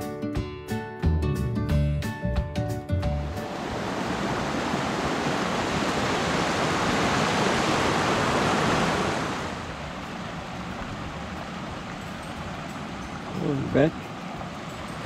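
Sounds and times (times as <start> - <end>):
stream rushing over stones: 3.2 - 15.0.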